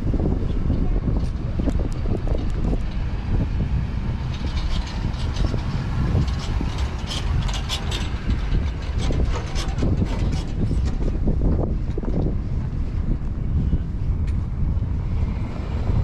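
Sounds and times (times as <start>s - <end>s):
wind buffeting microphone: 0.0s - 16.0s
sharp clicks and rattles: 0.7s - 12.3s.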